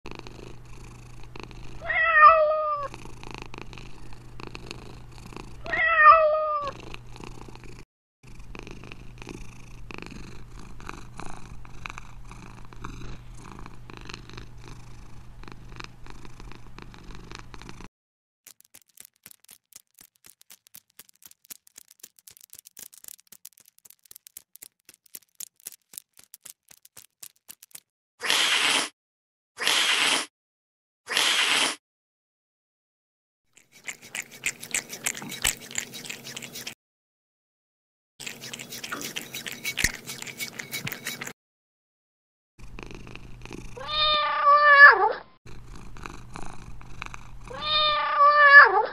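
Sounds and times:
cat purring: 0:00.1 - 0:01.8, 0:02.8 - 0:05.6, 0:06.7 - 0:17.9, 0:33.7 - 0:36.8, 0:38.2 - 0:41.3, 0:42.6 - 0:43.9, 0:45.5 - 0:47.6
cat meowing: 0:01.8 - 0:02.9, 0:05.6 - 0:06.8, 0:43.8 - 0:45.2, 0:47.5 - 0:48.9.

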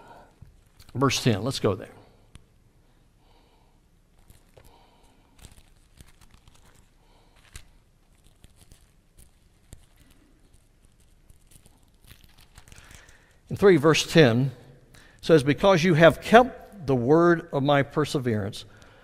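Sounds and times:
thin pages rustling: 0:04.2 - 0:13.3.

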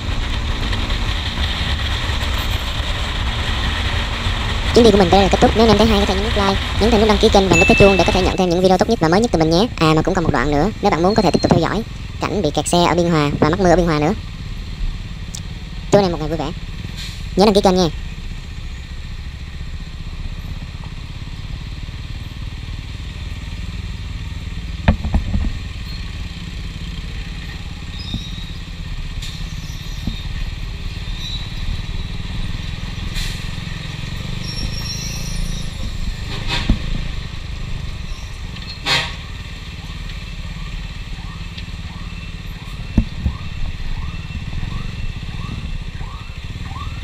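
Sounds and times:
motorcycle engine running: 0:00.0 - 0:10.8, 0:12.9 - 0:47.0
traffic rumble: 0:00.0 - 0:47.0
horn beeps: 0:07.4 - 0:08.9.

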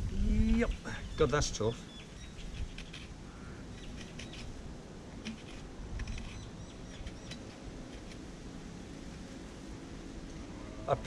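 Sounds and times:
knife scraping coconut: 0:02.4 - 0:04.6, 0:05.2 - 0:08.3.

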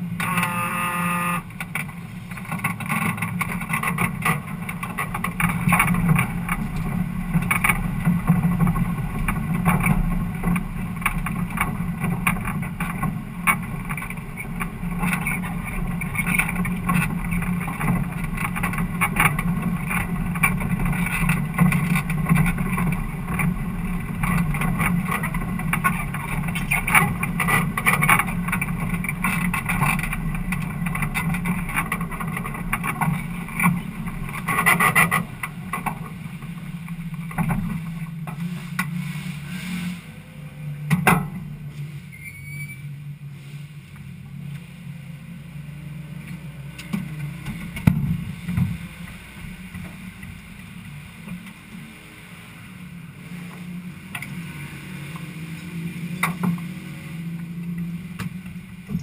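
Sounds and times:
car engine running: 0:00.0 - 0:42.2, 0:42.8 - 0:59.0
car body rattles and knocks: 0:01.5 - 0:38.4, 0:46.9 - 0:50.5.

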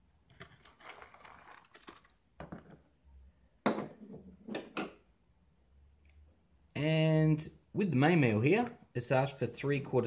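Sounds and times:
hot water pouring into pouch: 0:00.4 - 0:02.2.

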